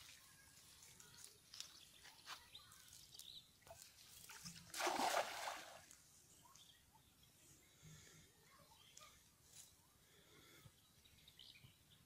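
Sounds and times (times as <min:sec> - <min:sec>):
water sloshing and dripping: 0:03.6 - 0:06.0
net splashing into water: 0:04.2 - 0:06.0.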